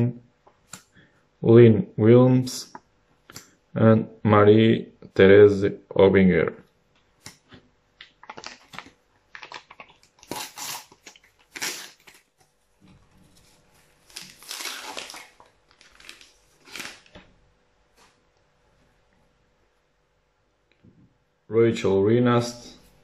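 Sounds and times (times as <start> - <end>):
paper packet tearing and crinkling: 8.2 - 12.4, 13.4 - 17.2.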